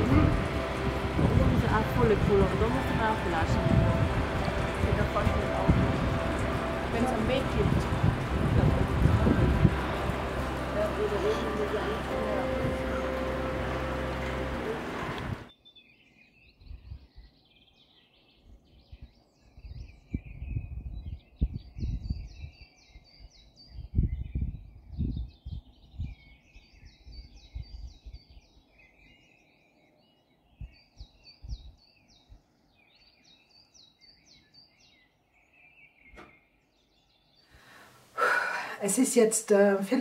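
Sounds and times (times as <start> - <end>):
wind buffeting microphone: 0.0 - 15.5, 18.6 - 28.6
small birds chirping: 15.4 - 40.0.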